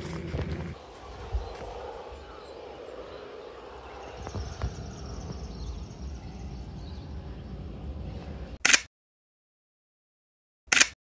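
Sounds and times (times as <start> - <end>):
steady low rumble: 0.0 - 8.6.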